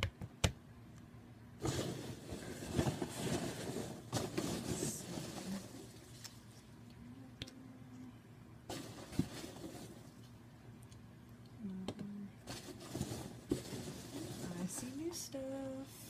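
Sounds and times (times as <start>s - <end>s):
hands rummaging in cardboard box: 1.6s - 6.2s, 8.7s - 10.1s, 12.5s - 15.1s.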